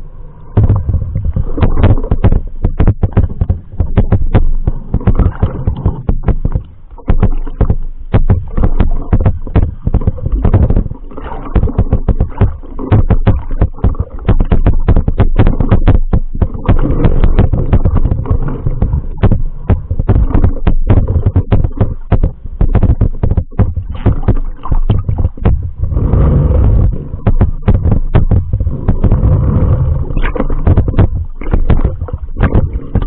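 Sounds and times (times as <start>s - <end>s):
low rumble of moving water: 0.0s - 33.0s
rapid irregular underwater clicks: 0.0s - 33.0s.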